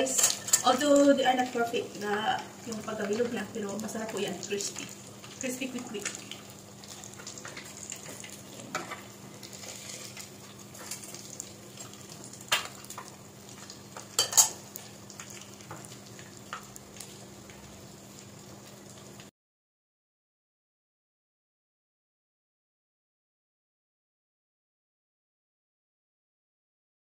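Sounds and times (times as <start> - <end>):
food deep-frying in oil: 0.0 - 19.3.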